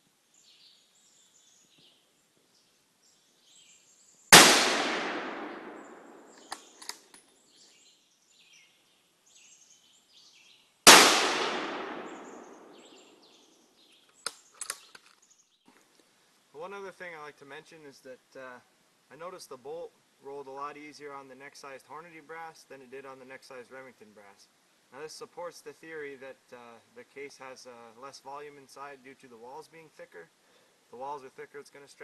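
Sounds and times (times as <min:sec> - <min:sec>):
rifle shots echoing: 0:04.3 - 0:06.8, 0:10.9 - 0:13.3
rifle bolt clicks: 0:06.4 - 0:07.2, 0:14.2 - 0:15.2.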